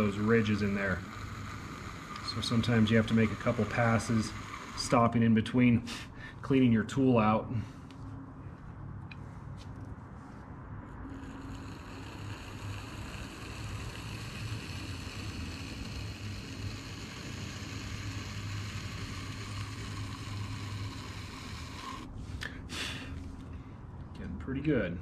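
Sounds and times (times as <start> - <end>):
metal tool scraping clay: 0.0 - 5.3, 11.0 - 22.4
pottery wheel humming: 0.0 - 7.5, 10.7 - 23.5.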